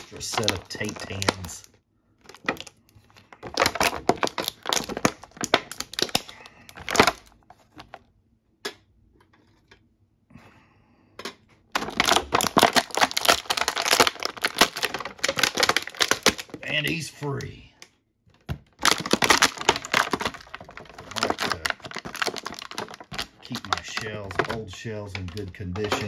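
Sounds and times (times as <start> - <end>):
plastic packaging crinkling: 0.0 - 8.0, 11.7 - 17.0, 18.4 - 26.0
scattered plastic clicks: 19.0 - 26.0.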